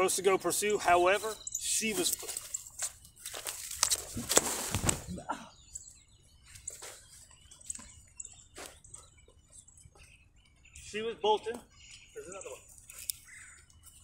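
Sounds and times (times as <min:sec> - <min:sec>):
small birds chirping: 0:00.0 - 0:14.0
rustling: 0:01.8 - 0:05.2.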